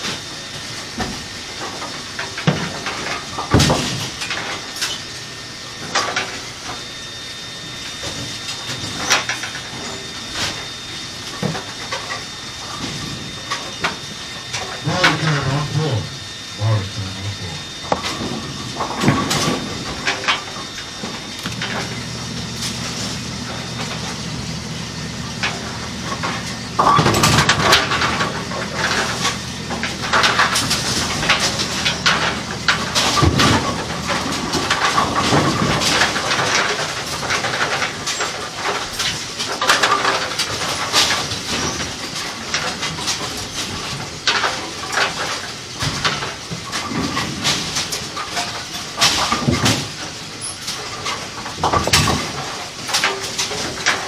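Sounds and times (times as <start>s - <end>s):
machine humming: 6.6s - 36.0s.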